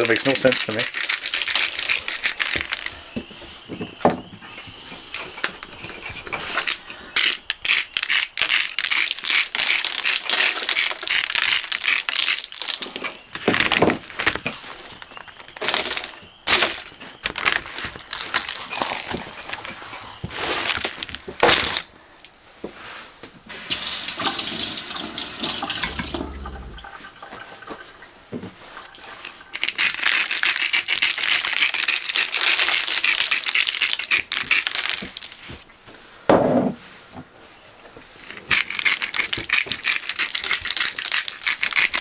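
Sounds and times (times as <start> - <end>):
paper crinkling and rustling: 9.6 - 21.9.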